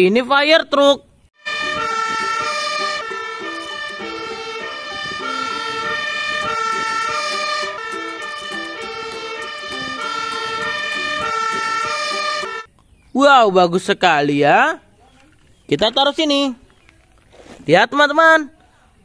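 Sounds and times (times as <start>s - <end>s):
fire engine two-tone siren: 1.4s - 12.7s.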